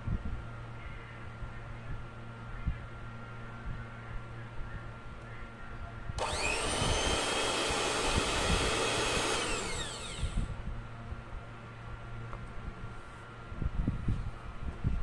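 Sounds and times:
electric hand mixer whine: 6.2 - 10.5.

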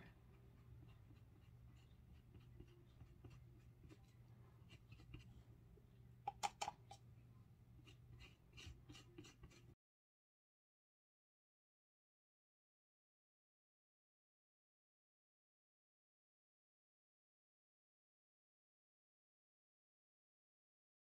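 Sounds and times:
low steady hum: 0.0 - 9.8
paintbrush scratching and tapping: 0.3 - 5.4, 6.3 - 7.0, 7.8 - 9.8.

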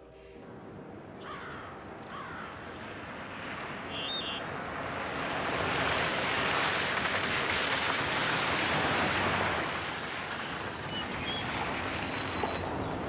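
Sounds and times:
birds calling: 1.2 - 2.5
car approaching on wet road: 2.7 - 13.0.

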